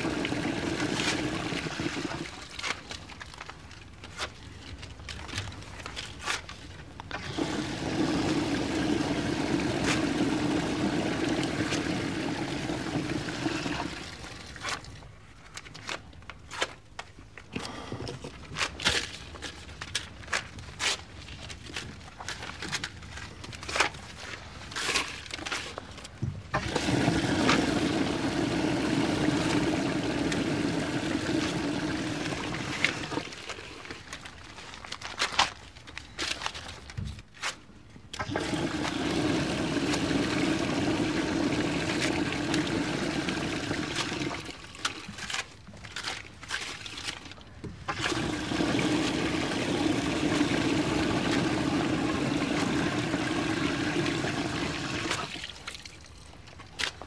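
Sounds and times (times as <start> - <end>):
toilet flushing: 0.0 - 2.5, 7.1 - 14.6, 26.5 - 33.4, 38.2 - 44.6, 47.9 - 55.6
paper banknotes crumpling: 2.1 - 6.9, 18.4 - 26.2, 32.5 - 37.7, 43.7 - 48.1.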